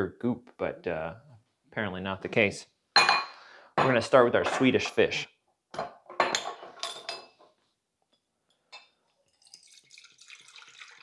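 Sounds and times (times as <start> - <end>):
glass clinking: 3.0 - 3.4, 8.5 - 11.0
liquid pouring into glass jug: 9.1 - 11.0.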